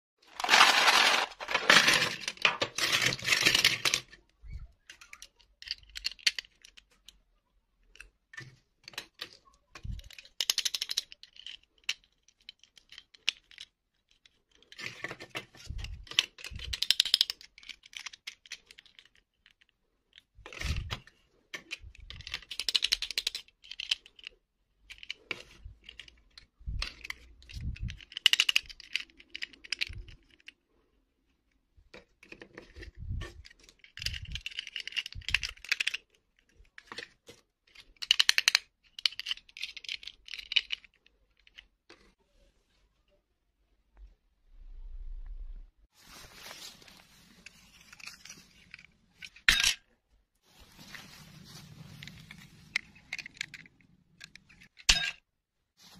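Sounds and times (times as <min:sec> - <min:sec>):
plastic dolls rattling in plastic box: 0:00.2 - 0:07.0, 0:08.4 - 0:30.6, 0:31.9 - 0:42.2, 0:50.5 - 0:54.9.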